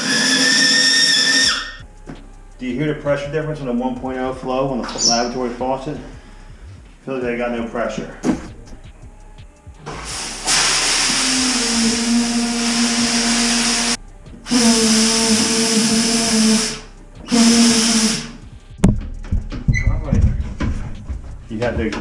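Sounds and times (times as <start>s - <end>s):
steady low tone: 1.8s - 22.0s
air and water hissing from shower: 9.8s - 18.4s.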